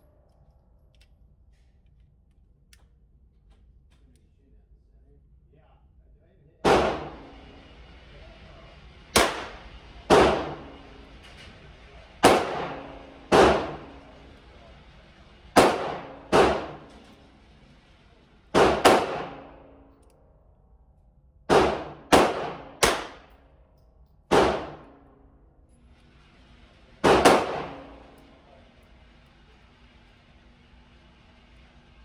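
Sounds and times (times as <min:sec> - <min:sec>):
gunshots echoing indoors: 0:06.6 - 0:08.1, 0:09.0 - 0:20.7, 0:21.4 - 0:32.0.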